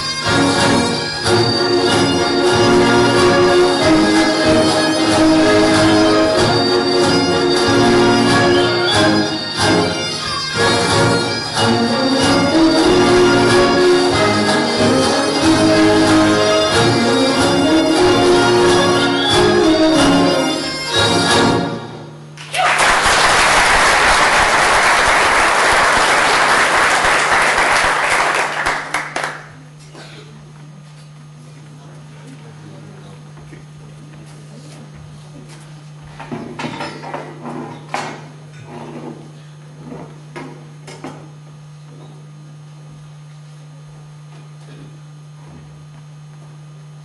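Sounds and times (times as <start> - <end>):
low electrical hum: 0.0 - 47.0
audience applauding: 22.4 - 29.6.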